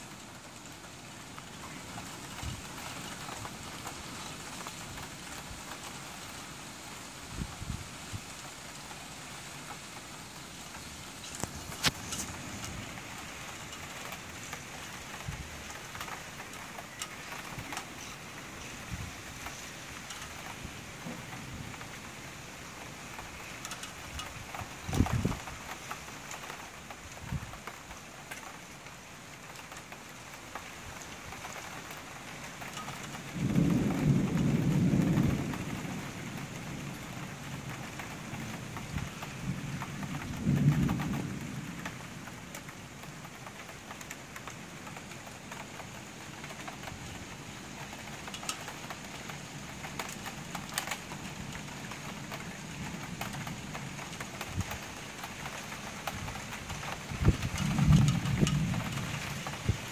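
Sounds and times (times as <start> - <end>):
steady rain: 0.0 - 59.9
thunder rumbling: 32.7 - 43.0, 50.0 - 59.9.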